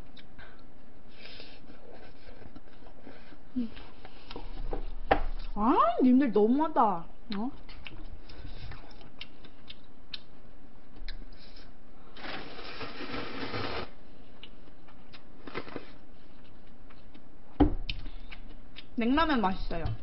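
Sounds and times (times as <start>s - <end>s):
slurping noodles: 12.2s - 14.0s, 15.4s - 16.0s
dull thump: 17.6s - 17.9s.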